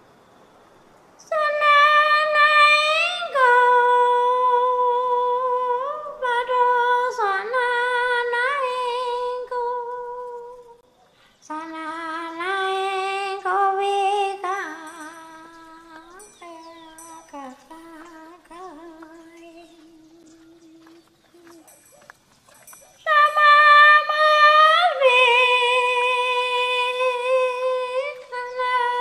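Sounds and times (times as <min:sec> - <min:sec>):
high voice singing unaccompanied: 0:01.2 - 0:10.8, 0:11.5 - 0:21.8, 0:23.0 - 0:29.0.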